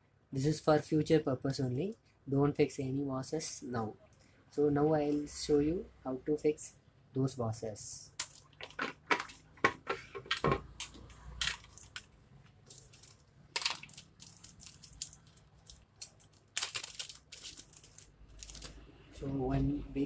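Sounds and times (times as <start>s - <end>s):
plastic bag crinkling: 8.2s - 9.5s, 10.9s - 18.9s.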